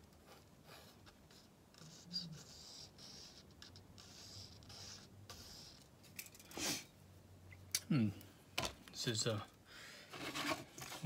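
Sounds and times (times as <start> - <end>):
pencil scratching on wood: 0.1 - 5.8.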